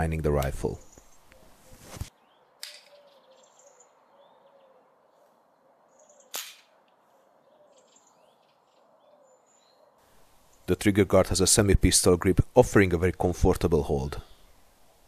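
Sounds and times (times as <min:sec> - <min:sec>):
faint bird chirps: 0:00.8 - 0:06.4, 0:07.0 - 0:10.7.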